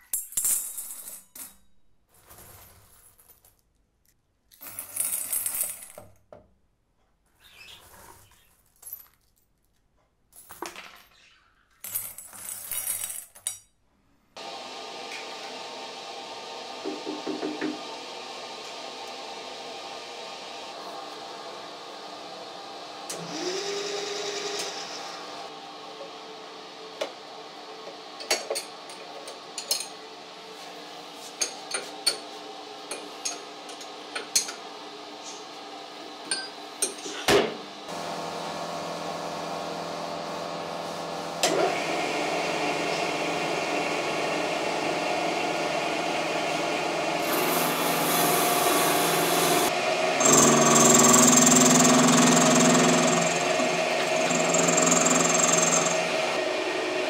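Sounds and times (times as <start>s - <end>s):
metal lathe running: 43.4s - 57.0s
lathe tool cutting steel: 46.0s - 57.0s.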